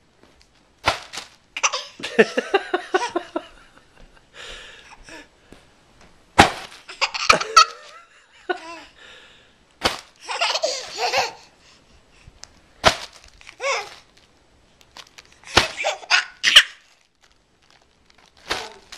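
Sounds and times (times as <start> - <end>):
baby laughing: 1.6 - 2.3, 6.9 - 8.9, 10.2 - 11.5, 13.6 - 14.0, 15.5 - 16.9.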